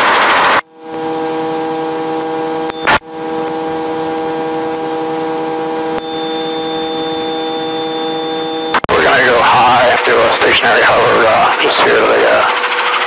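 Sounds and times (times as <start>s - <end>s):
helicopter cabin whine: 0.2s - 13.0s
thin high tone: 5.7s - 8.8s.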